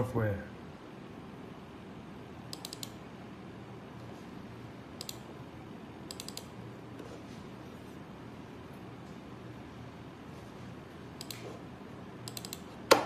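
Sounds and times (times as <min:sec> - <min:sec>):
faint room hum: 0:00.0 - 0:13.0
computer mouse clicking: 0:02.5 - 0:03.0, 0:05.0 - 0:05.3, 0:06.0 - 0:06.6, 0:11.2 - 0:11.6, 0:12.2 - 0:13.0.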